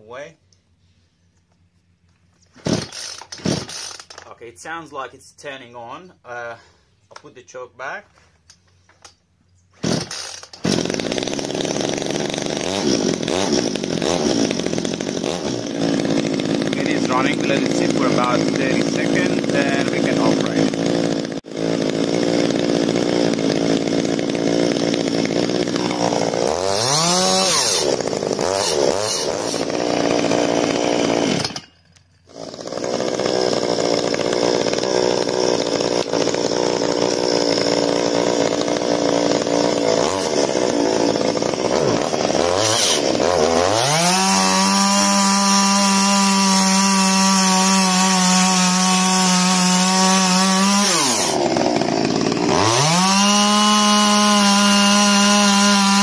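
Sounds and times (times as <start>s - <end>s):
chainsaw cutting into log: 2.4s - 4.4s, 9.7s - 56.0s
chainsaw idling and revving: 2.6s - 4.5s, 9.8s - 56.0s.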